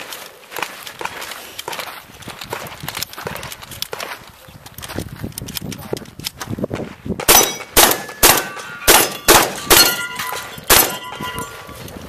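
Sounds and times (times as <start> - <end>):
shotgun shots: 7.2 - 11.3
steel targets clanging: 7.3 - 11.9.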